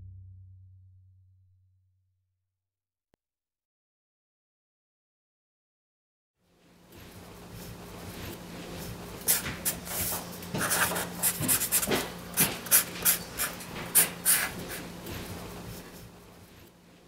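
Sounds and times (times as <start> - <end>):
marker scratching on paper: 9.3 - 14.9.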